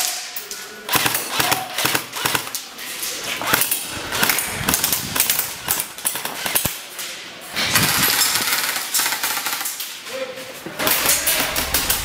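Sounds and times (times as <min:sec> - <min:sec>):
airsoft rifles firing full auto: 0:00.9 - 0:02.6, 0:07.7 - 0:09.9.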